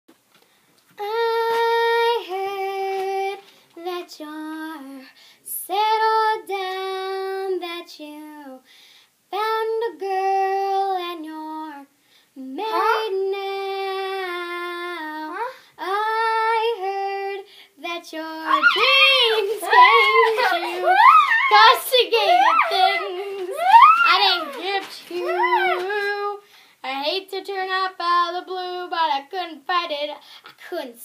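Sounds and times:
high voice singing unaccompanied: 0:09.4 - 0:30.1.

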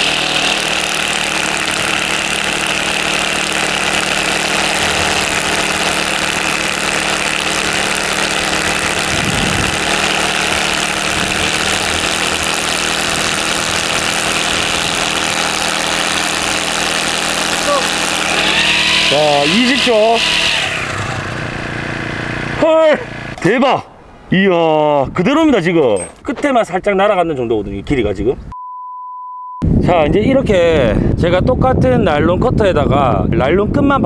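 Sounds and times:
trimmer line hitting rock: 0:00.0 - 0:20.6
brush cutter engine running: 0:00.0 - 0:23.5.

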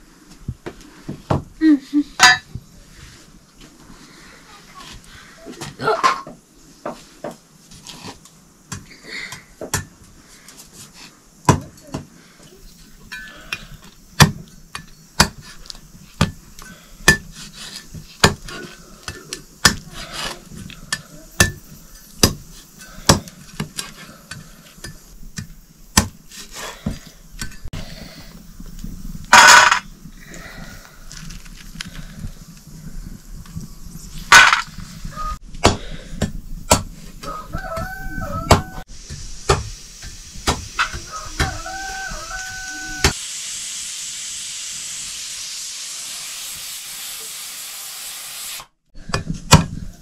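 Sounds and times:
metal pots and utensils clinking: 0:02.2 - 0:02.6.

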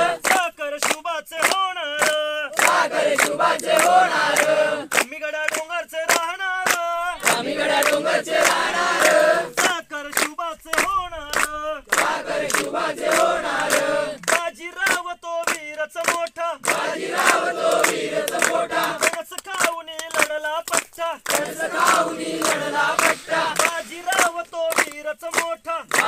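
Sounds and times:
group chanting in unison: 0:00.0 - 0:00.5, 0:02.2 - 0:05.0, 0:06.6 - 0:14.5, 0:16.5 - 0:19.2, 0:21.2 - 0:24.8
rhythmic hand clapping: 0:00.0 - 0:26.0.

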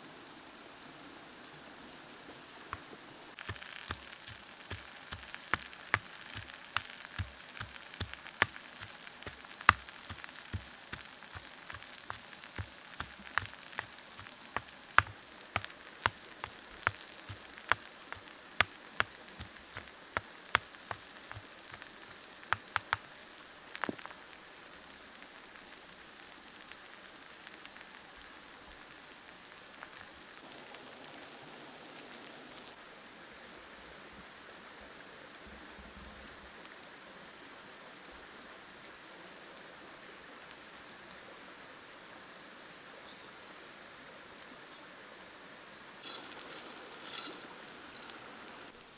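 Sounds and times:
faint hiss: 0:00.0 - 0:48.9
wood fire crackling: 0:02.7 - 0:32.8, 0:46.0 - 0:48.9.

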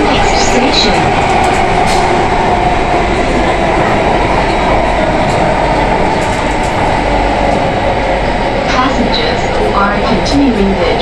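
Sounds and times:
train wheels rumbling on rail: 0:00.0 - 0:11.0.

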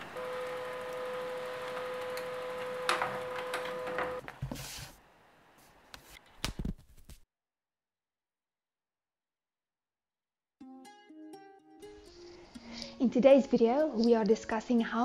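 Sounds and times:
printer clicks: 0:00.0 - 0:04.2
printer motor whine: 0:00.0 - 0:04.2.

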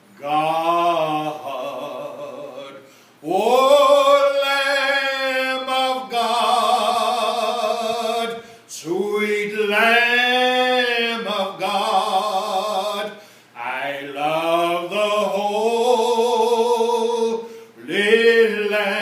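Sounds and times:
man singing a hymn: 0:00.0 - 0:19.0
man breathing: 0:02.8 - 0:03.2, 0:08.4 - 0:08.7, 0:13.1 - 0:13.6, 0:17.4 - 0:17.8.

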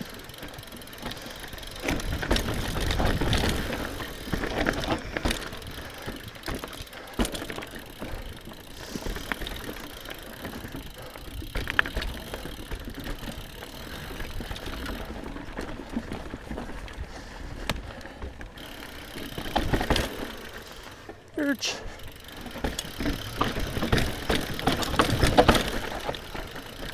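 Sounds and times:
bike chain and frame rattling: 0:00.0 - 0:26.9
bike tyres rolling over dirt: 0:00.0 - 0:26.9
bike hitting bumps knocks: 0:22.5 - 0:26.2.

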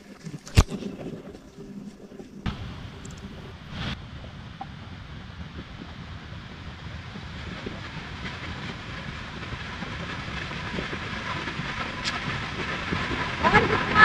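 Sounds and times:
faint clicks: 0:00.0 - 0:03.4, 0:11.7 - 0:12.8
moving vehicle rumbling: 0:02.5 - 0:14.0.

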